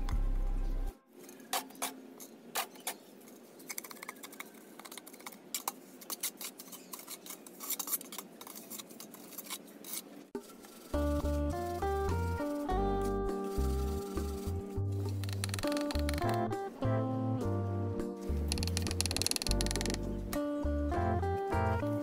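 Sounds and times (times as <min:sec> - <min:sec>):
trowel scraping mortar: 0:03.7 - 0:12.7
background music: 0:10.8 - 0:22.0.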